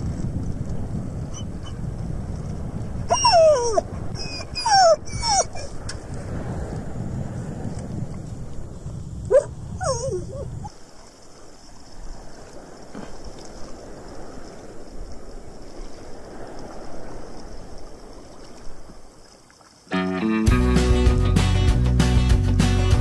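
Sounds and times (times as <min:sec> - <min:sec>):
small waves lapping: 0:00.0 - 0:19.9
dog whining yelps: 0:03.1 - 0:05.7, 0:09.3 - 0:10.7.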